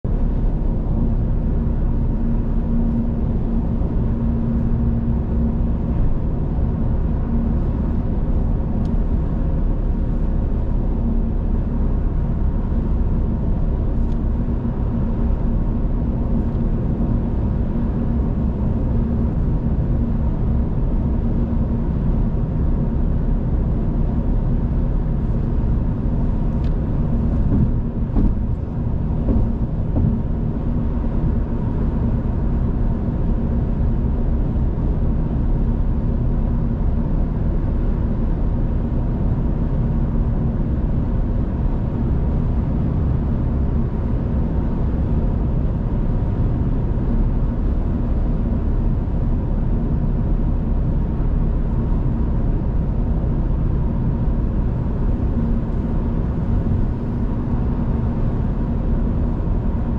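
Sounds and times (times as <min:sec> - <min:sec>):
car tyres and engine rumble: 0:00.0 - 0:59.9
constant low hum: 0:00.0 - 0:59.9.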